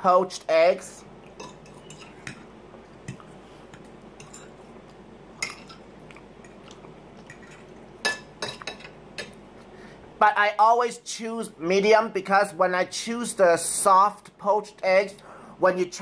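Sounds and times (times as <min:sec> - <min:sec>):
soft chewing: 0:01.2 - 0:08.0.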